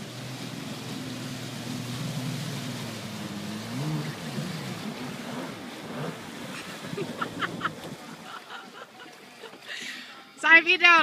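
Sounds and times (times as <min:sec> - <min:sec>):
jet ski engine running: 0:00.0 - 0:09.7
water splashing: 0:00.0 - 0:10.4
wind noise: 0:05.6 - 0:08.3.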